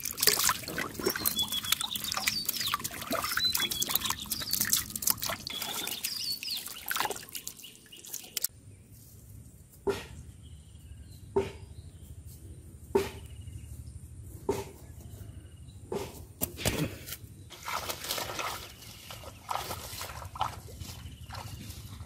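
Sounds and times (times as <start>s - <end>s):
rustling and crackling leaves: 0.0s - 9.9s, 16.2s - 22.0s
footsteps through grass: 17.5s - 22.0s.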